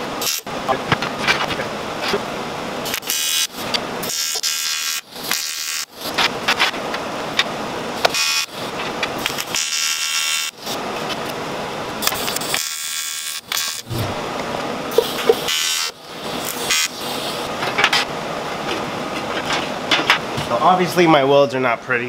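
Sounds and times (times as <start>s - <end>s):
welding arc buzzing: 0.0s - 0.8s, 2.8s - 7.4s, 8.0s - 18.1s.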